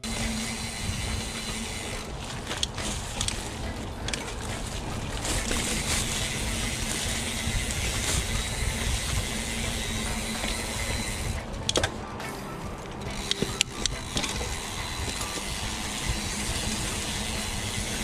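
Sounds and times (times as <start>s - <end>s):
bike tyres on dirt: 0.0s - 18.0s
grass brushing against bike: 0.0s - 18.0s
wind buffeting microphone: 0.0s - 18.0s
sharp clicks: 12.8s - 15.5s.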